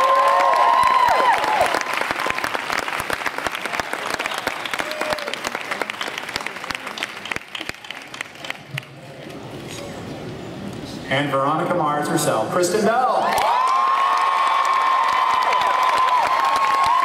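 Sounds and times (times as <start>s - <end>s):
audience clapping and cheering: 0.0s - 9.2s, 13.2s - 17.0s.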